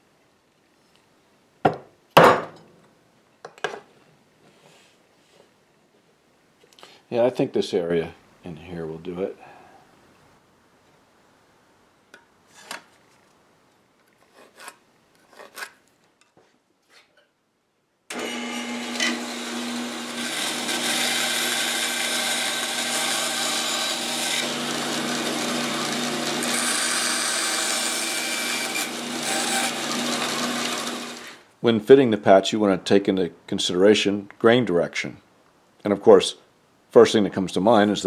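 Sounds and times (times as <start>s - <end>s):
bandsaw cutting wood: 18.1s - 31.4s.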